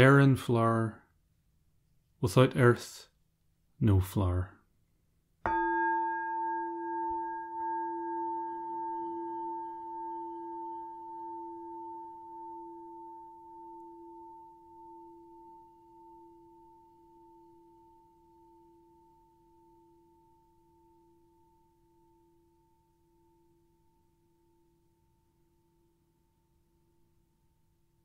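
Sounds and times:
meditation bowl ringing: 5.4s - 26.1s.

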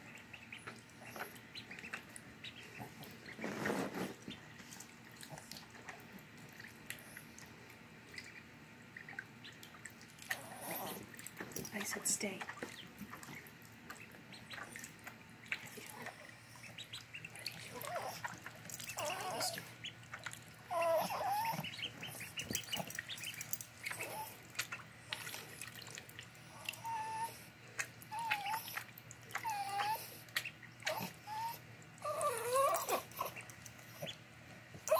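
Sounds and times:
ducklings splashing in water: 0.0s - 31.3s
water drips: 4.7s - 27.0s.

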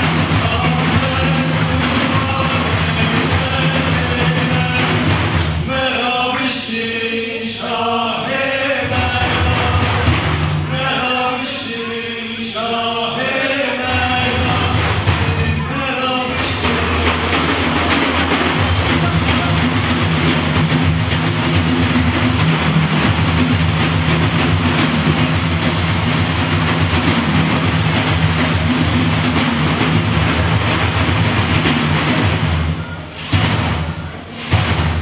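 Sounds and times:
frame drums rolling: 0.0s - 5.7s, 14.2s - 35.0s.

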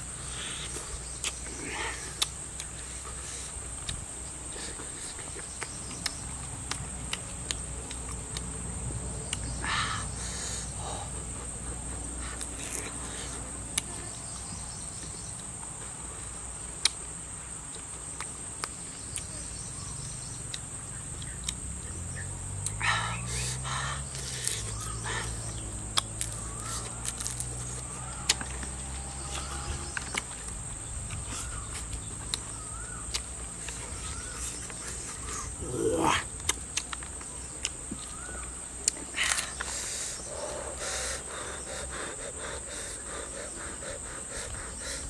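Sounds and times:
person chewing crunchily: 12.4s - 13.9s, 24.1s - 39.4s
high-pitched insect drone: 26.3s - 36.2s.

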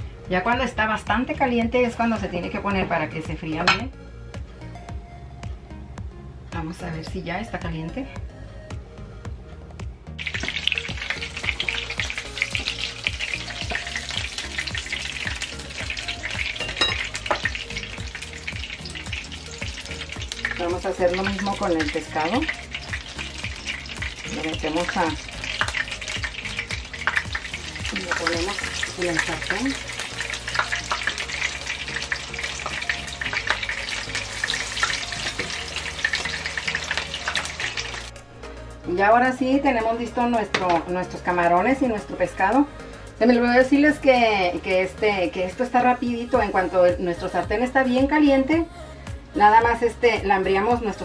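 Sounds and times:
shrimp sizzling in hot oil: 10.2s - 38.2s.

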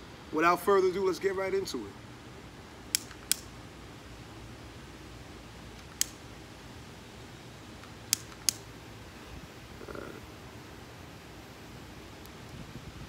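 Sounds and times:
faint steady background noise: 0.0s - 13.0s
cigar lighter clicking: 5.8s - 6.2s.

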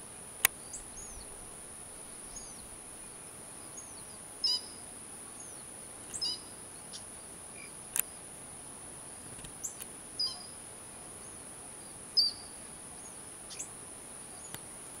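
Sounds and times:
high-pitched bird chirps: 4.4s - 4.7s, 6.1s - 6.5s, 10.2s - 10.4s.

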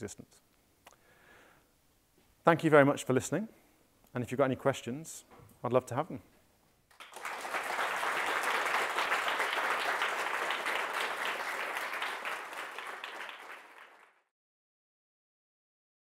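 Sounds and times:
audience applauding: 6.9s - 14.3s.

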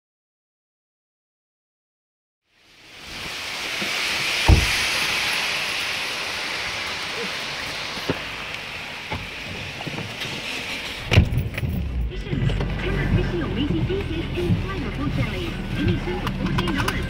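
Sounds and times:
floodwater rushing along gutter: 2.5s - 17.0s
heavy rain: 2.5s - 17.0s.

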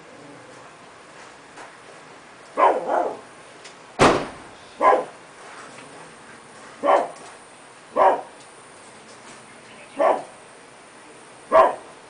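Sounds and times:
dog barking: 2.6s - 3.2s, 4.8s - 5.1s, 6.8s - 7.2s, 8.0s - 8.3s, 10.0s - 10.3s, 11.5s - 11.9s.

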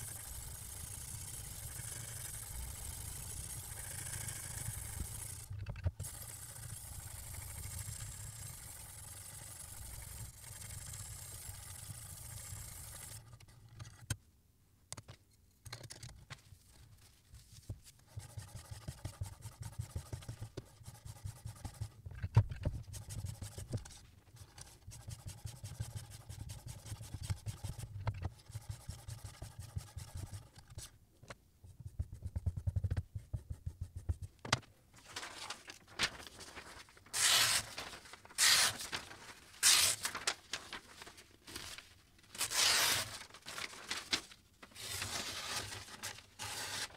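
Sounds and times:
knife slicing paper: 35.2s - 46.9s.

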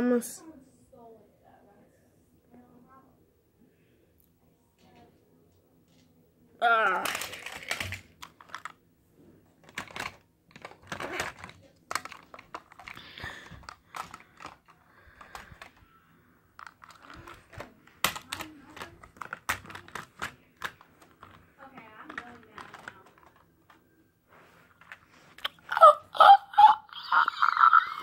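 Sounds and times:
plastic toy pieces clattering: 6.8s - 8.8s, 9.6s - 15.8s, 16.6s - 23.8s.

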